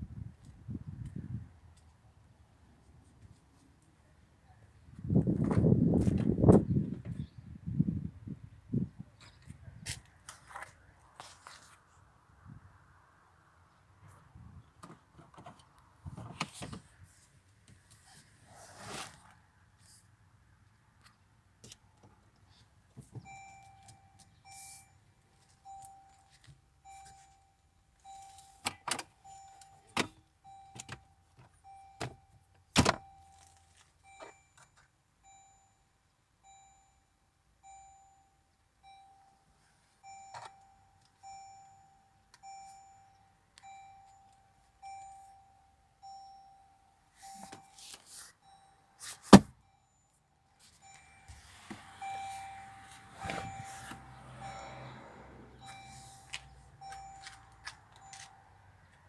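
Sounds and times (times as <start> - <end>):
cabin warning chime: 23.2 - 28.6, 29.2 - 32.4, 33.0 - 58.5.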